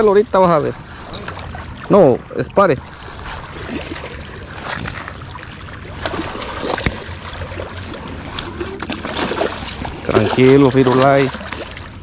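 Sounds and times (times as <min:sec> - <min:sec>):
sharp splashes: 0:00.8 - 0:12.0
fish thrashing and splashing: 0:02.8 - 0:12.0.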